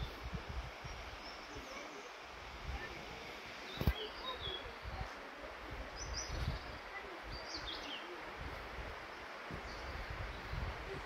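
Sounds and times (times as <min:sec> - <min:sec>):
small birds chirping: 0:00.0 - 0:11.0
steady hiss: 0:00.0 - 0:11.0.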